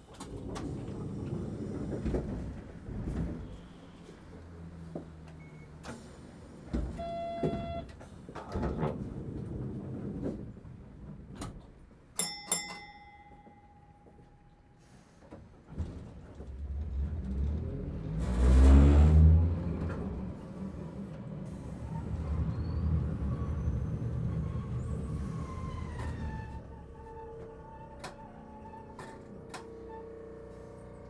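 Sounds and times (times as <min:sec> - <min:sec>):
streetcar rumbling: 0:00.0 - 0:12.2, 0:13.4 - 0:31.0
short buzzer tone: 0:07.0 - 0:07.9.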